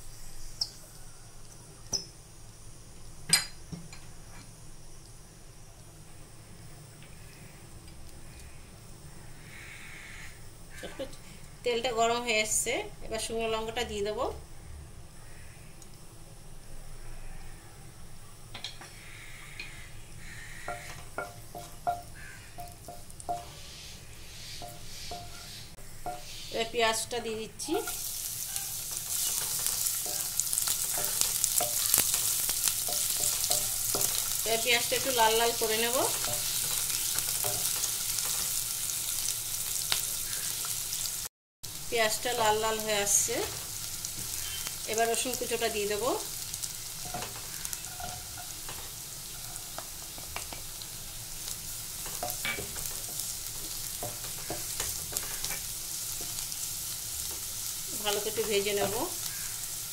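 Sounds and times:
onions sizzling in hot oil: 18.1 - 59.9
wooden spatula scraping wok: 27.6 - 38.7, 43.4 - 59.5.

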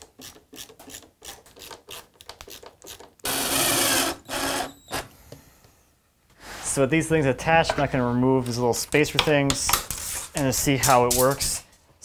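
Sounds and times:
impact driver driving screw: 3.2 - 5.1.

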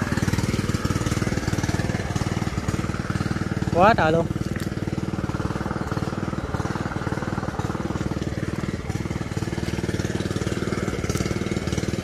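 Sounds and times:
small water pump engine running: 0.0 - 12.0.

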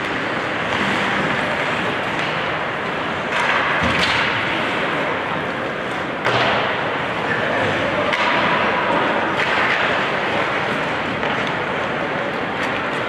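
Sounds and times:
skates scraping on ice: 0.0 - 3.6
arena noise: 0.0 - 13.0.

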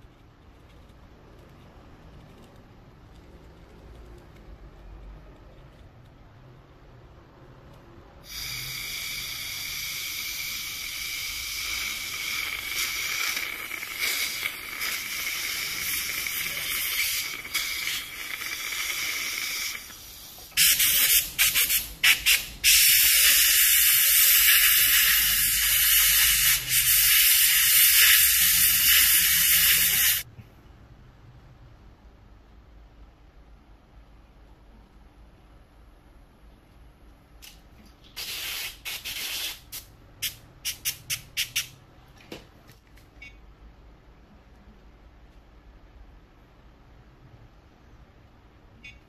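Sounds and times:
dental drill hissing whine: 8.2 - 30.2.

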